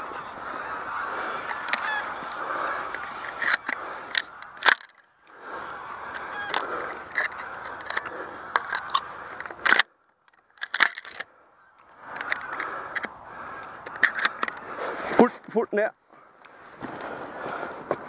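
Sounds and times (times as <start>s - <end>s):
shotgun clicks and knocks: 3.3s - 5.0s, 6.5s - 11.3s.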